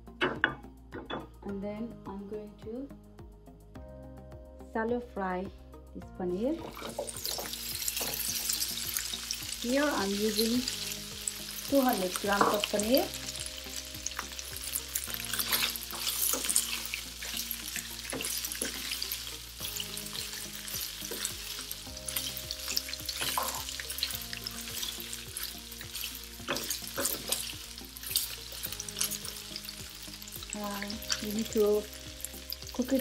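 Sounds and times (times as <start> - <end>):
cheese sizzling in frying pan: 6.5 - 33.0
spatula scraping a pan: 6.6 - 9.2, 14.2 - 29.3.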